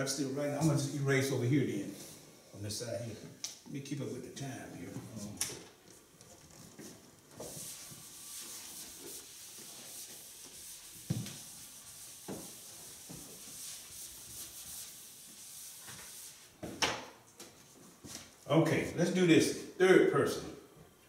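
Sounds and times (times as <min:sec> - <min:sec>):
eraser swishing on chalkboard: 0:06.8 - 0:16.6.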